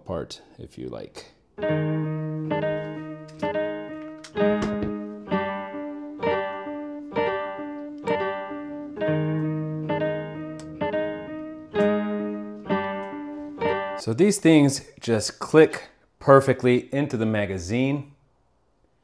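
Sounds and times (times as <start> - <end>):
plucked string instrument chords: 1.6 - 14.0.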